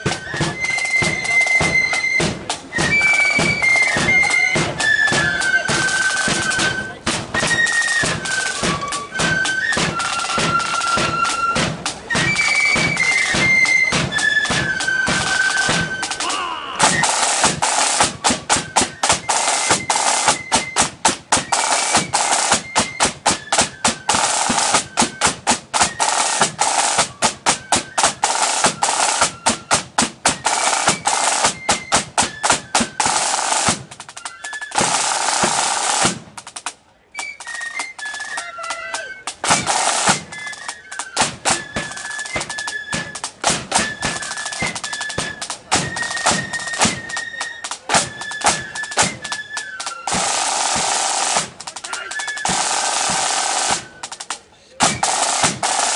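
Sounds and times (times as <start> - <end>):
flutes playing melody: 0.0 - 55.9
snare drum rolls: 0.0 - 55.9.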